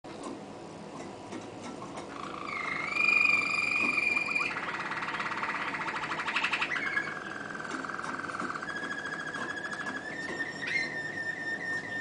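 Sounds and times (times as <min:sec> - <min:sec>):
canary singing: 0:02.1 - 0:12.0.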